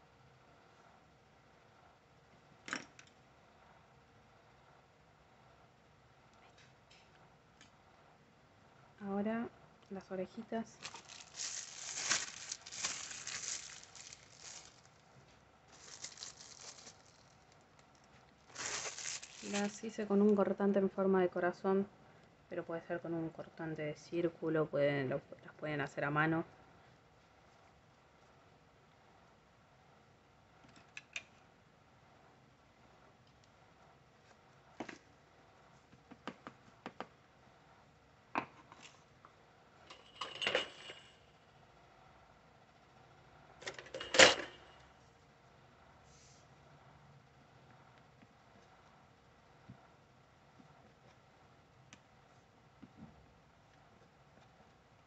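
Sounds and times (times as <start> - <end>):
hands crinkling modelling clay: 10.6 - 20.1.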